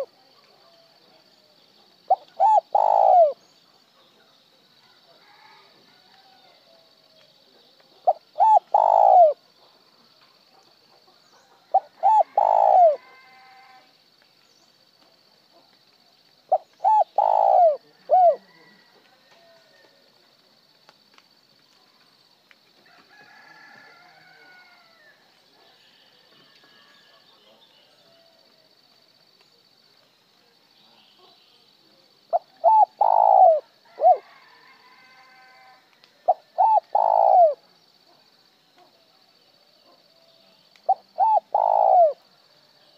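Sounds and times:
dove cooing: 2.1s - 3.4s, 8.0s - 9.4s, 11.7s - 13.0s, 16.5s - 18.5s, 32.3s - 34.2s, 36.3s - 37.6s, 40.9s - 42.2s.

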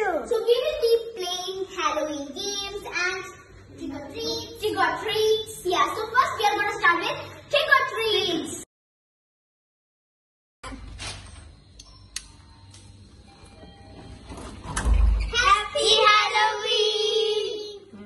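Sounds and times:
click: 11.8s - 12.9s
children singing together: 15.4s - 17.9s.

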